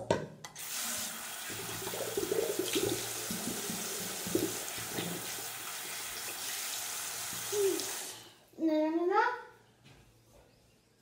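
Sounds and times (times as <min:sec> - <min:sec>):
tap water running into sink: 0:00.6 - 0:08.1.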